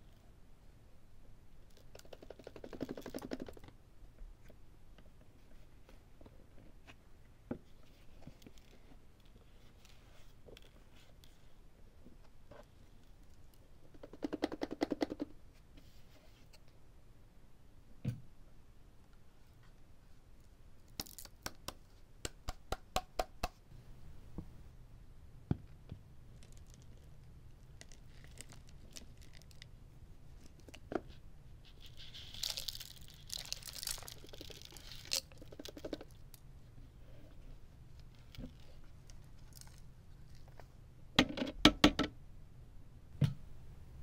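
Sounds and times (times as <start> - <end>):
lint and paper rustling: 31.7 - 36.0.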